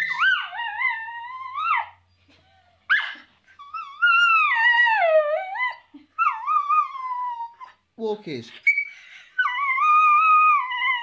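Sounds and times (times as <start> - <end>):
dog yipping: 0.0 - 7.8.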